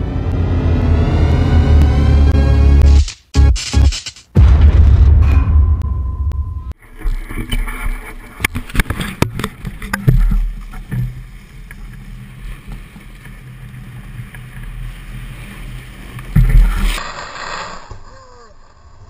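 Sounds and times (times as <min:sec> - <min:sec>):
skis scraping over snow: 0:07.7 - 0:19.0.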